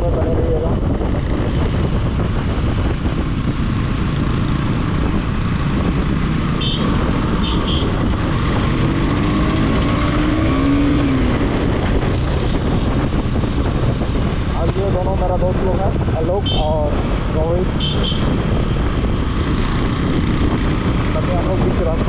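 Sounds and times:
road and wind noise: 0.0s - 22.0s.

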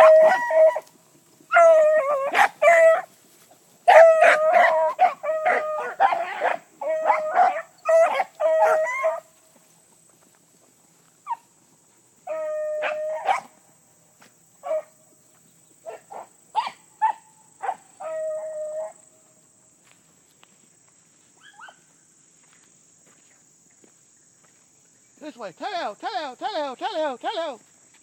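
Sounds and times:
beagles baying: 0.0s - 3.2s, 3.8s - 9.4s.

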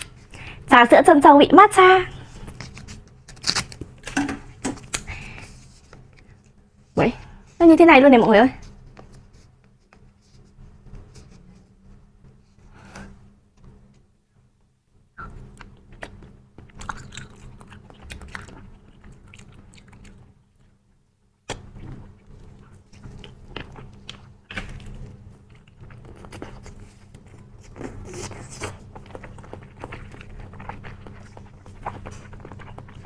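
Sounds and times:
chewing with wet smacks: 15.4s - 20.8s, 21.5s - 33.0s.

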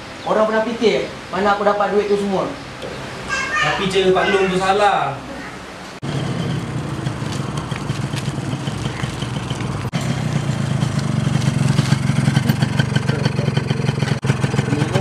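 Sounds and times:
motorcycle engine running: 6.0s - 15.0s.

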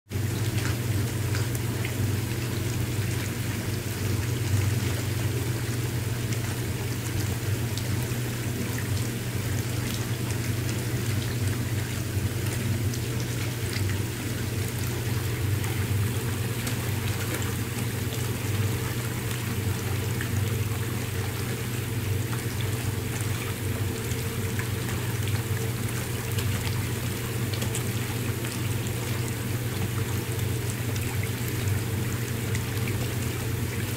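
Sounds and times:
bubbling churning water: 0.1s - 33.9s
low pump hum: 0.1s - 33.9s.

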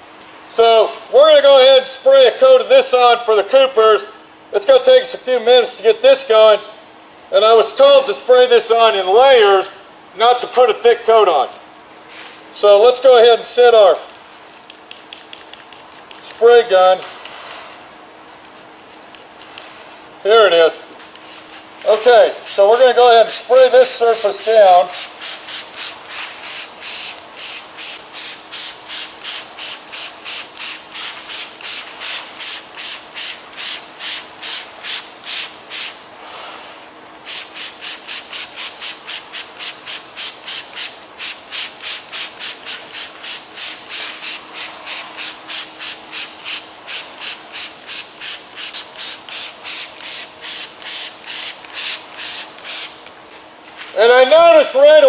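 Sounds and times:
trigger sprayer hissing: 13.9s - 18.1s, 21.0s - 53.1s.

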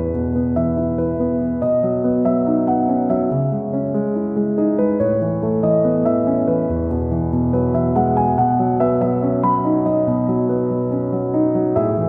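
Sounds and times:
keyboard melody: 0.0s - 12.0s.

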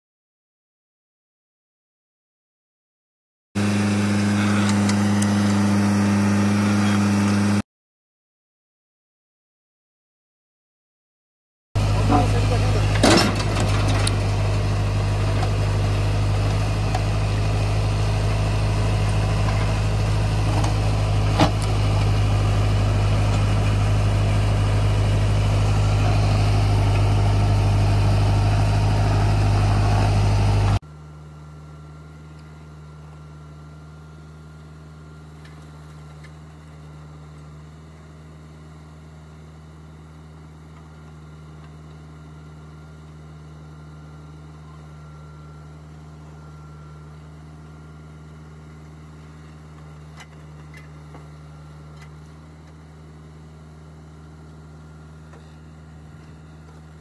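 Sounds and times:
backhoe digging soil: 3.6s - 7.6s, 11.8s - 30.8s
tractor diesel engine running: 3.6s - 7.6s, 11.8s - 57.0s.

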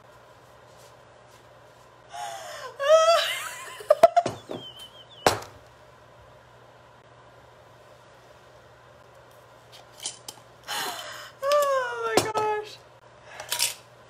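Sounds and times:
woman laughing hard: 2.8s - 5.2s.

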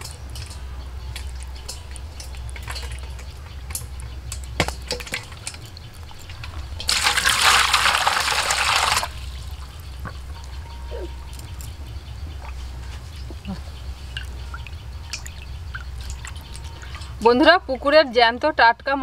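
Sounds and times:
fish flapping against metal bowl: 0.0s - 10.6s, 11.2s - 19.0s
water pouring into bowl: 4.8s - 9.7s.

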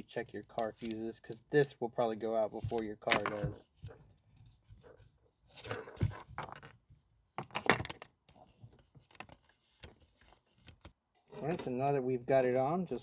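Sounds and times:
plastic clicks and rustles: 0.5s - 1.4s, 7.4s - 11.3s
plastic clatter: 2.6s - 4.1s, 5.6s - 6.8s, 7.4s - 11.7s.

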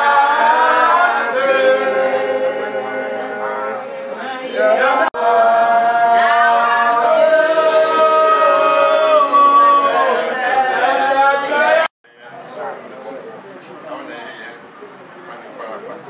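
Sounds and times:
voices singing long notes: 0.0s - 11.9s.

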